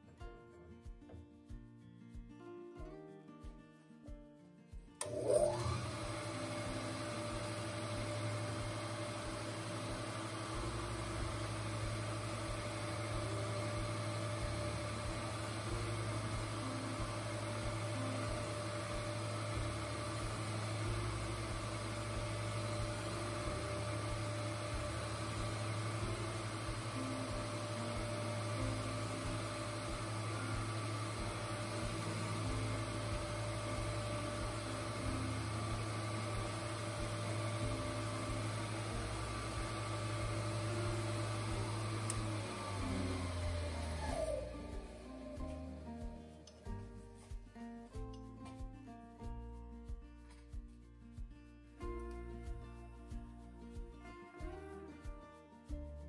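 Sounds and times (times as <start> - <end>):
surface grinder humming: 5.0 - 46.1.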